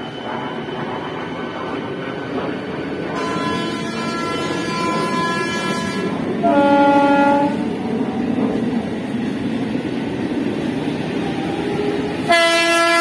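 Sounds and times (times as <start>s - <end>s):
train running on rails: 0.0s - 13.0s
train horn blasts: 3.2s - 7.6s, 12.3s - 13.0s.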